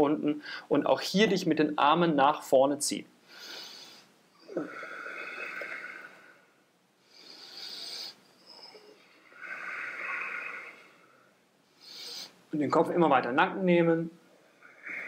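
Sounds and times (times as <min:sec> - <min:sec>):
man breathing deeply: 0:03.2 - 0:12.5.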